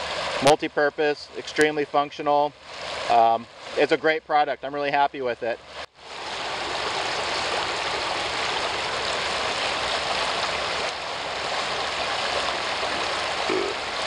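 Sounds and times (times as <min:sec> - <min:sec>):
river rushing: 0:02.6 - 0:03.9, 0:05.7 - 0:14.0.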